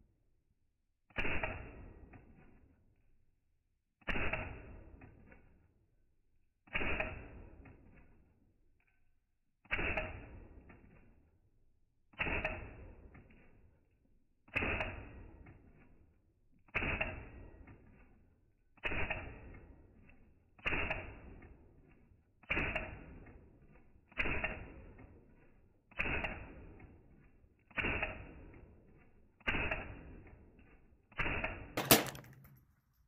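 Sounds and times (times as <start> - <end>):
rifle shots: 31.8 - 32.6.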